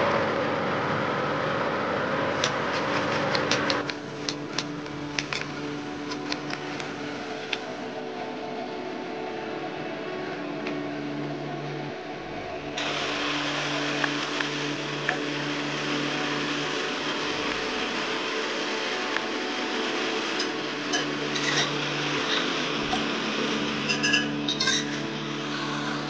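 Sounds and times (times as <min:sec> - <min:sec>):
low hum: 0:00.0 - 0:26.0
shallots deep-frying in oil: 0:19.3 - 0:26.0.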